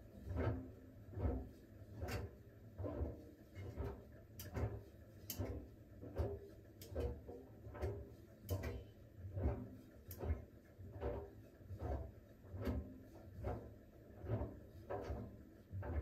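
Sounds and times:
washing machine drum turning: 0:00.3 - 0:11.4.

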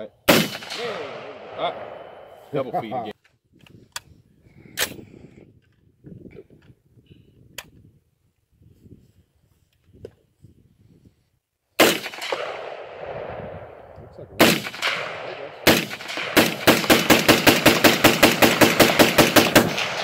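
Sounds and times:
gunshots with echo: 0:00.3 - 0:02.6, 0:11.8 - 0:20.0
rapid semi-automatic gunfire: 0:11.8 - 0:13.4, 0:14.4 - 0:20.0.

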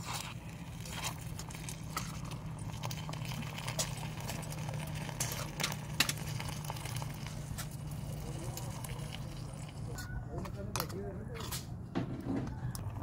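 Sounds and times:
food crackling in pan over fire: 0:00.0 - 0:10.0
steady low hum: 0:00.0 - 0:13.0.

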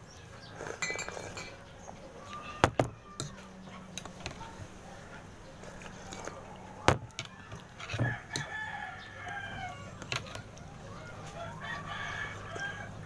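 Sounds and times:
rooster crowing: 0:08.0 - 0:10.1, 0:10.9 - 0:13.0.

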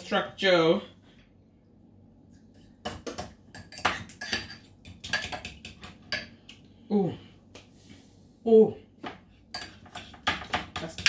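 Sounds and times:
spoon clinking against bowl: 0:02.9 - 0:06.3.

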